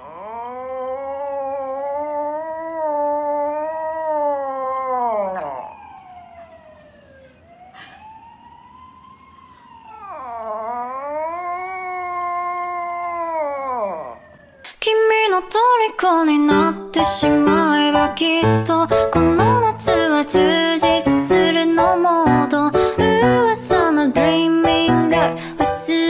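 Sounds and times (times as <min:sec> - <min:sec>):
small dog howling: 0:00.0 - 0:06.0, 0:09.9 - 0:14.4.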